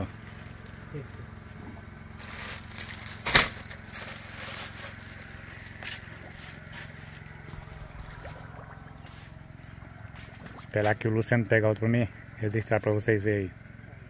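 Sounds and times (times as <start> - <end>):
plastic bag crinkling: 0.0 - 1.2, 2.2 - 8.1
steady low hum: 0.0 - 14.0
sharp crack: 2.2 - 4.9.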